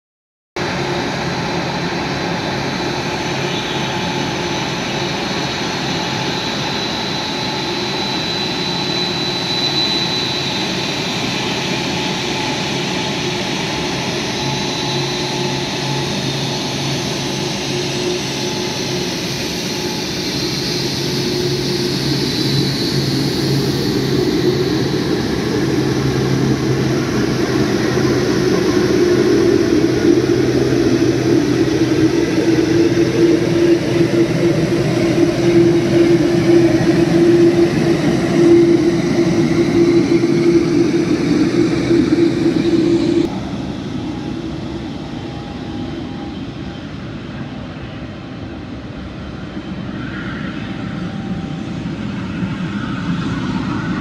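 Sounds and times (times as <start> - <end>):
high engine whine: 0.6 - 54.0
jet engines rumbling: 0.6 - 54.0.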